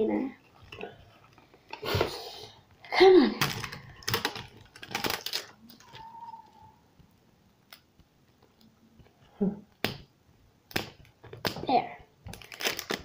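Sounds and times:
plastic wrapping crinkling and tearing: 3.2 - 6.6, 12.2 - 13.0.

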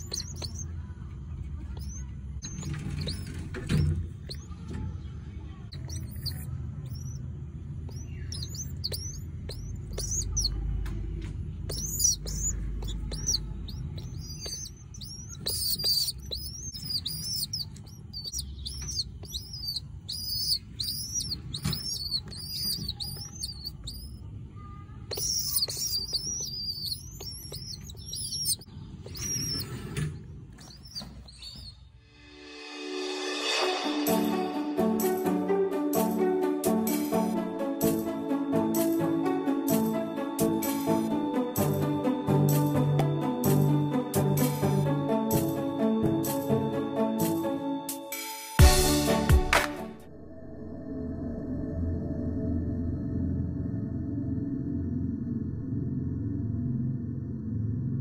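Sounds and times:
pigeon chicks peeping: 0.0 - 0.8, 1.4 - 32.0, 39.6 - 43.7
low rumbling: 50.0 - 58.0.

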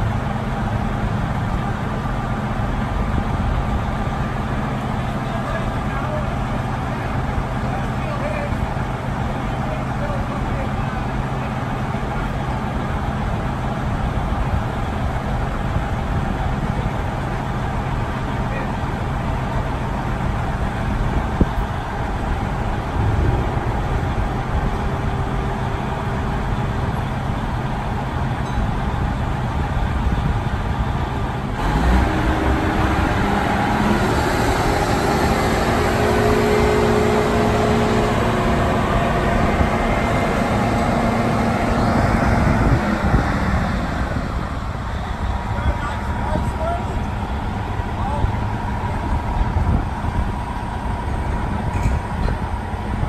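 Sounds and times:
diesel engine running: 0.0 - 53.0
whine rising in pitch: 22.5 - 26.4.

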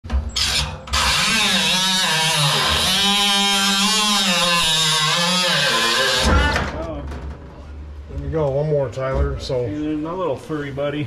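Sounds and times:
cut-off tool cutting metal: 0.4 - 6.5.

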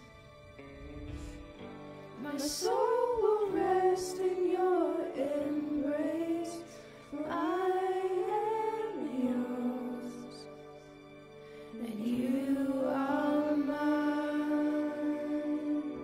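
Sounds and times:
girls singing into microphones: 2.2 - 10.6, 11.7 - 16.0.

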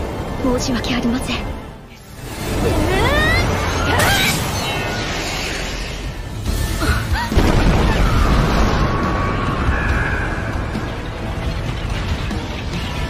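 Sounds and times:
music: 0.0 - 5.1, 5.7 - 13.0
deep explosion blast: 7.3 - 10.2.

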